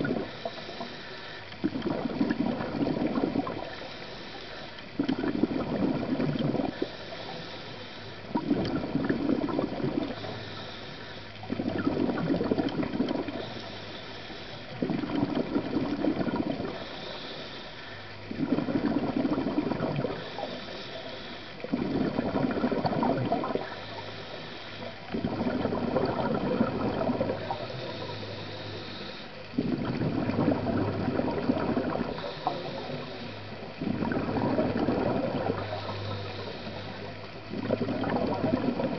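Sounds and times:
exhaled bubbles underwater: 0.0 - 38.9
regulator inhalation hiss: 0.1 - 1.6, 3.6 - 4.8, 6.7 - 8.3, 10.0 - 11.4, 13.3 - 15.3, 16.6 - 18.3, 20.0 - 21.9, 23.5 - 25.1, 27.2 - 29.5, 32.0 - 33.8, 35.4 - 37.4.

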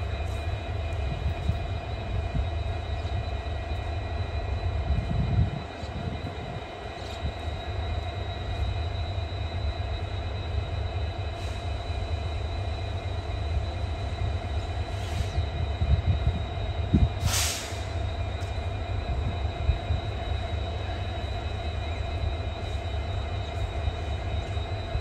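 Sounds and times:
steady whine: 0.0 - 25.0
train low rumble: 0.0 - 25.0
short hiss: 17.2 - 17.9.

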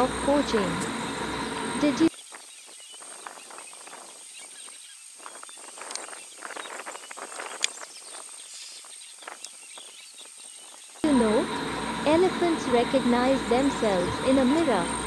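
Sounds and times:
thin steady high tone: 0.0 - 2.1, 11.0 - 15.0.

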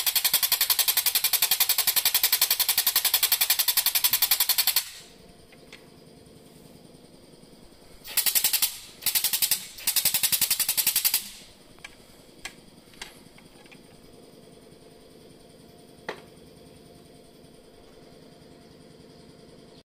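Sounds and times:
pneumatic jack pump chattering: 0.0 - 5.8, 8.0 - 14.0.

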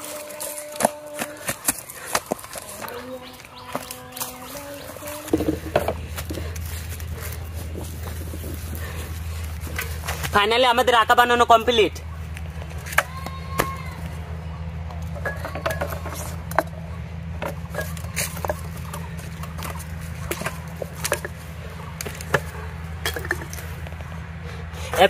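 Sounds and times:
clay pots clicking and knocking: 0.0 - 10.6, 14.9 - 24.2
steady low hum: 0.0 - 25.0.

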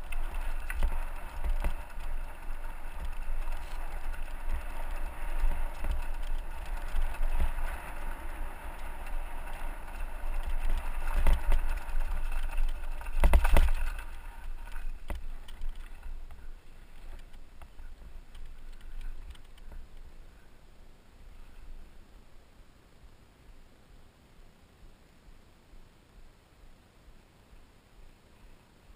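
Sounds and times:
bike clattering jolt: 0.0 - 19.8
tyres crunching over gravel: 0.0 - 19.8
wind and vibration rumble: 0.0 - 22.2.

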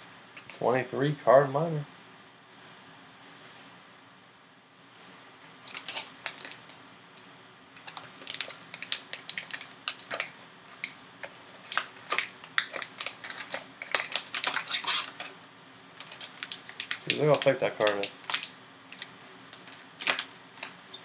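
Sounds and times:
foil pouch crinkling: 5.6 - 6.8, 7.8 - 21.0.

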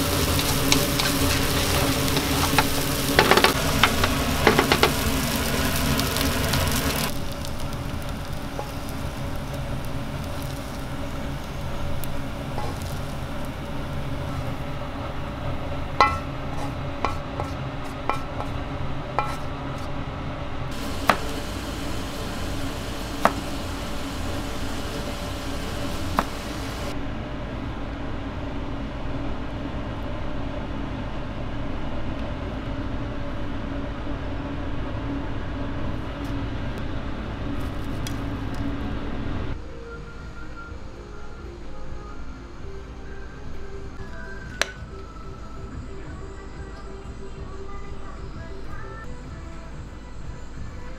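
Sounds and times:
kitchen hum: 0.0 - 27.0
spatula clinking on wok: 16.0 - 17.5.

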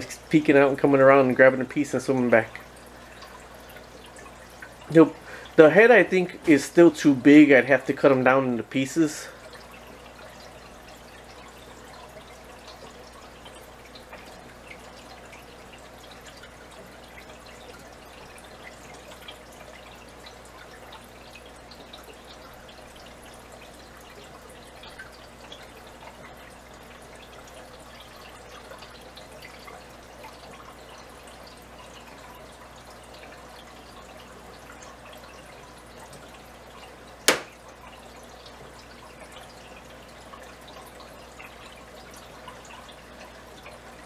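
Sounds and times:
water trickling and dripping: 0.0 - 44.0
sharp click: 37.3 - 37.6.

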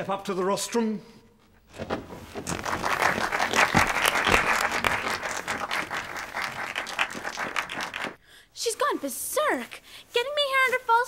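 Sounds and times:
audience applauding: 2.4 - 8.2.

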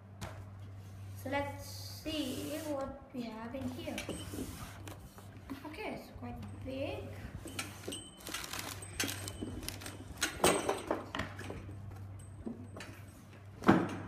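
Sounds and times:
foam scraping against cardboard: 2.2 - 2.8
small parts clicking and rattling: 7.5 - 11.0.

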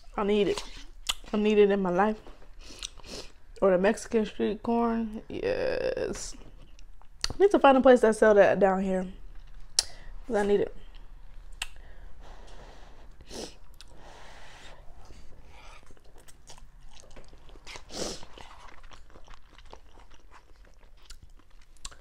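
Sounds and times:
wet chewing with mouth smacks: 15.6 - 22.0.

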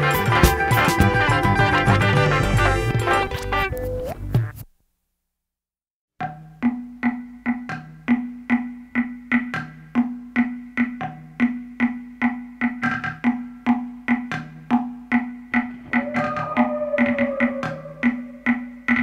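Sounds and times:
repeating pitched percussive strikes: 15.0 - 18.8
held tone sliding down in pitch: 15.8 - 18.7.

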